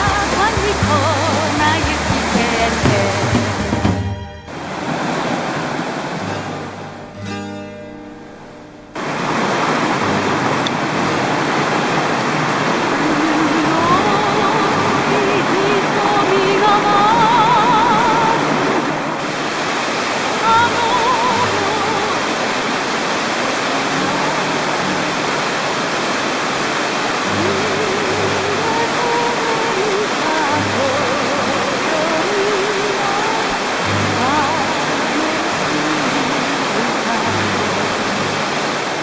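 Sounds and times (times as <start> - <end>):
music with wavering melody: 0.0 - 4.6, 6.2 - 9.0
waterfall rushing over rocks: 0.0 - 39.0.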